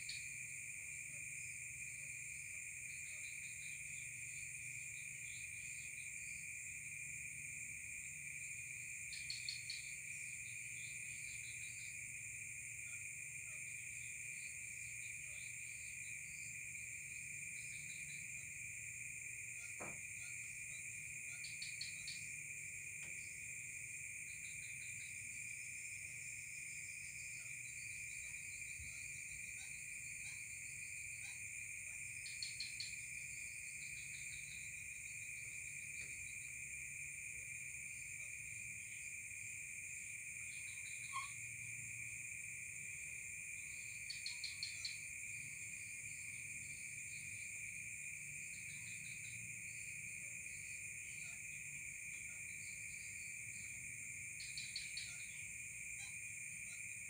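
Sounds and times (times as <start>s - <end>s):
crickets trilling: 0.0s - 57.0s
rapid cricket chirping: 0.0s - 57.0s.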